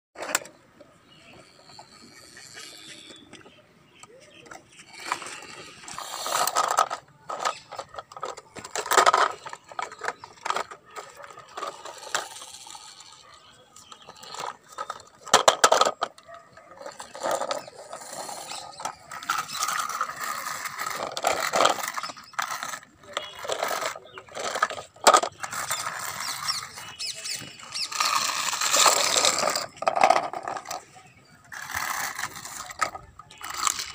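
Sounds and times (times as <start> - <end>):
plastic toys clattering on concrete: 0.2 - 33.9.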